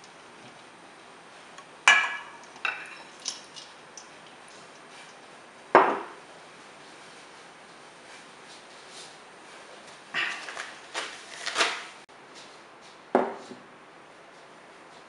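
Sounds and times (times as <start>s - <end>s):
metal bowls and whisk clinking: 1.9s - 5.2s.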